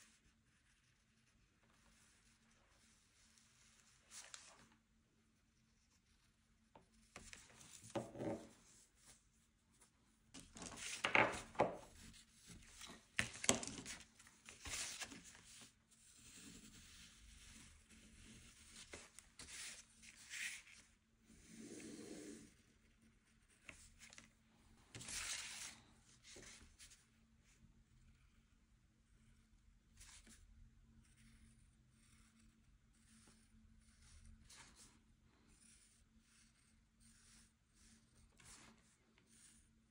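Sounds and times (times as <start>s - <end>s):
art materials scratching on paper: 31.0s - 39.6s.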